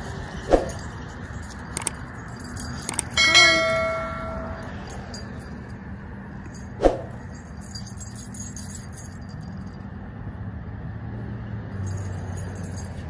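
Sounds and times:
faint light clinking: 0:00.7 - 0:05.8, 0:06.4 - 0:09.9.

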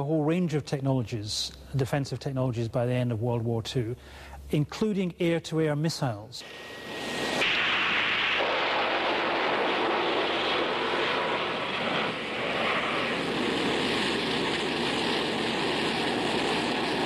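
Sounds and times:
aircraft engine running: 0:06.4 - 0:17.0.

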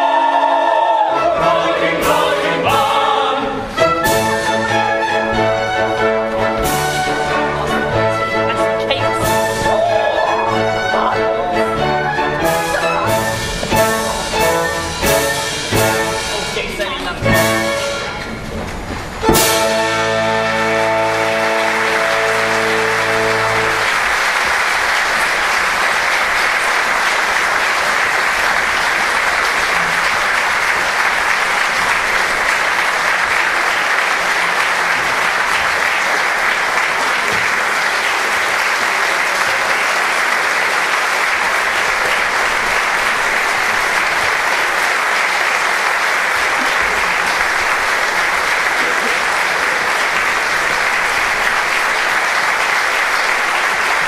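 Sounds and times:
held orchestral chord: 0:01.1 - 0:24.2
audience applauding: 0:04.0 - 0:54.0.

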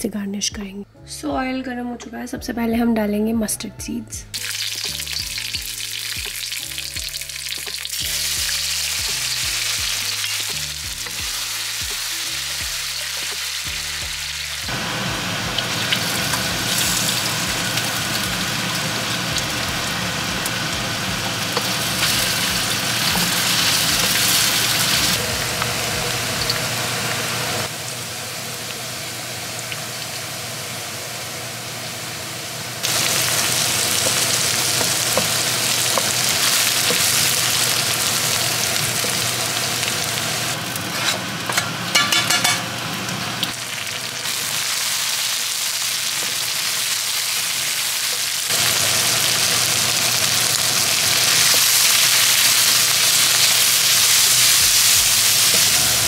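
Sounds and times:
hot oil sizzling in a wok: 0:04.3 - 0:56.0.

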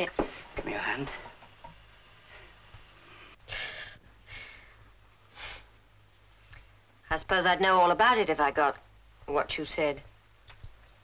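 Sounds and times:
sharp hissing breaths: 0:02.2 - 0:05.9.

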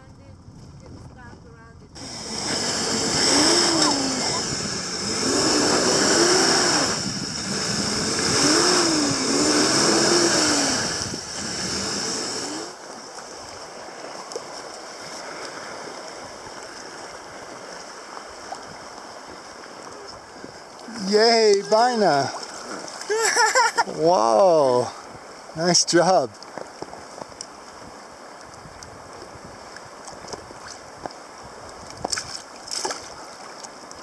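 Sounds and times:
wind: 0:00.0 - 0:34.0
lake water washing: 0:01.9 - 0:34.0
van engine revving: 0:02.0 - 0:12.7.

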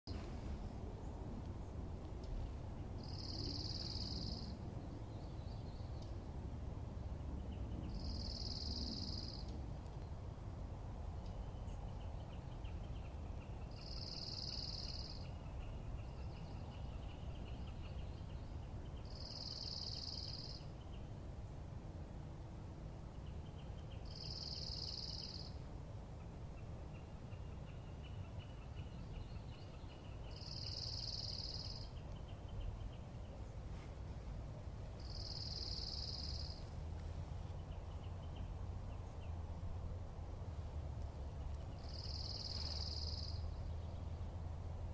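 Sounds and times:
low outdoor rumble: 0:00.1 - 0:44.9
faint low bird trill: 0:02.3 - 0:06.0, 0:07.9 - 0:09.5, 0:27.0 - 0:33.6, 0:35.0 - 0:36.7, 0:41.6 - 0:44.2.

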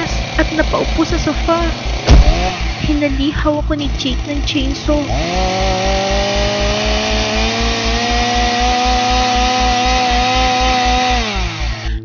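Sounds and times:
chainsaw revving: 0:00.0 - 0:12.0
low pulsing thump: 0:01.9 - 0:03.0.

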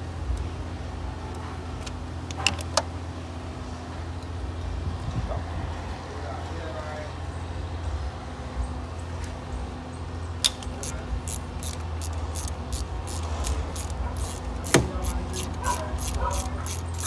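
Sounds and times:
socket ratchet clicking: 0:10.4 - 0:17.0.

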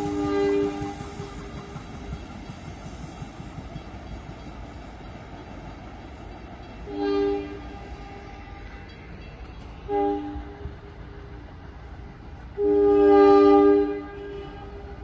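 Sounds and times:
train horn blasts: 0:00.0 - 0:01.5, 0:06.8 - 0:09.0, 0:09.8 - 0:11.0, 0:12.5 - 0:15.0
train low rumble: 0:00.0 - 0:15.0.

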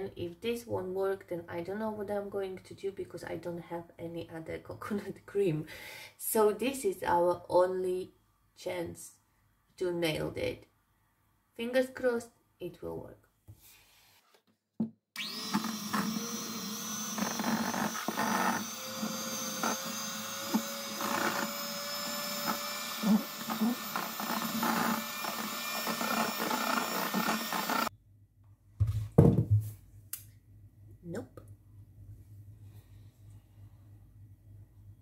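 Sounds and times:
electric hand mixer motor whining: 0:15.2 - 0:27.9.

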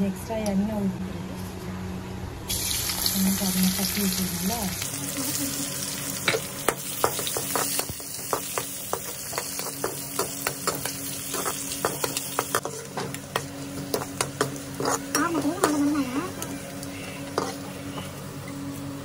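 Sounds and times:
garlic sizzling in oil: 0:02.5 - 0:17.8
metal spoon scraping pan: 0:13.9 - 0:16.0.

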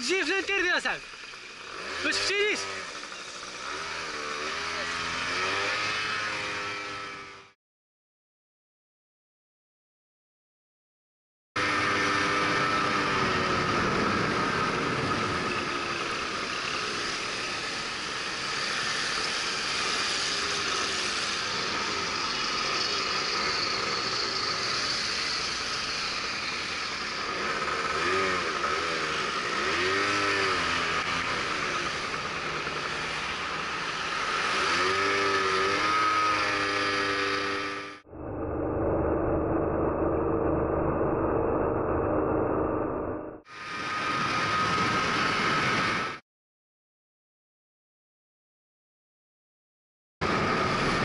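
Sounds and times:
road and wind noise: 0:00.0 - 0:07.5, 0:11.6 - 0:46.2, 0:50.2 - 0:51.0
scooter engine revving: 0:00.0 - 0:07.6, 0:11.6 - 0:39.3.

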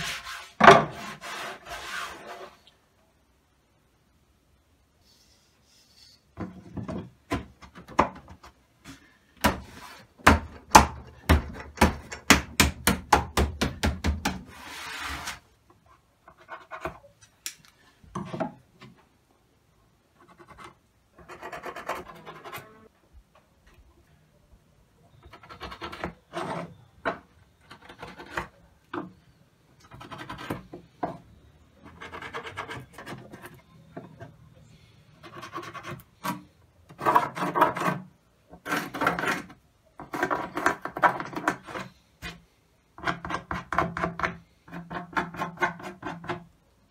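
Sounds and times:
pencil scratching on wood: 0:00.0 - 0:02.6, 0:20.2 - 0:22.8, 0:29.9 - 0:30.7, 0:31.8 - 0:33.6, 0:35.2 - 0:41.9.

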